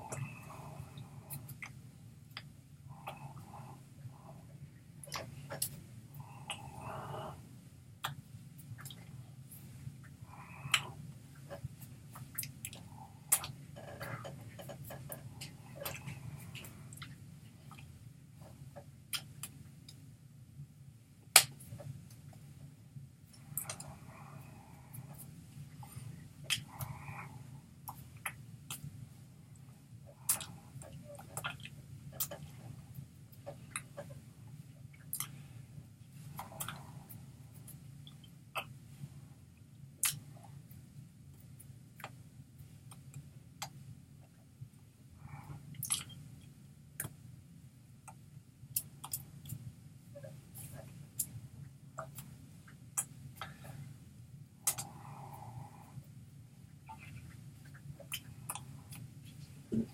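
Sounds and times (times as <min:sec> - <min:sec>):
steady low hum: 0:00.0 - 0:59.9
small mouth noises: 0:05.0 - 0:07.4, 0:10.0 - 0:20.0, 0:23.3 - 0:28.9, 0:29.6 - 0:35.6, 0:36.3 - 0:38.8, 0:40.0 - 0:40.8, 0:45.2 - 0:46.3, 0:48.0 - 0:49.6, 0:54.6 - 0:55.9.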